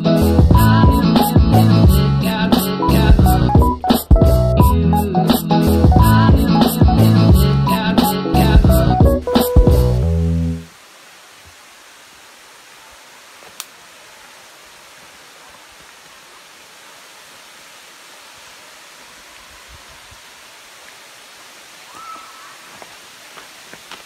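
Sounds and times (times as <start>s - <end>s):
waterfall rushing: 10.6s - 24.0s.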